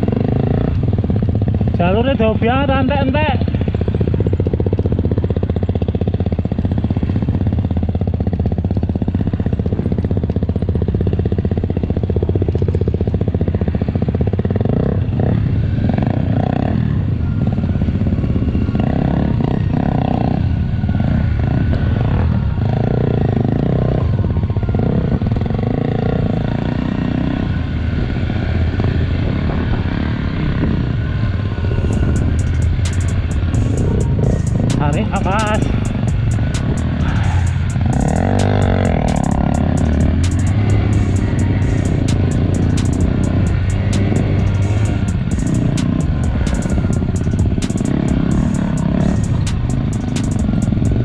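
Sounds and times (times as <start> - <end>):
motorcycle engine running: 0.0 - 51.0.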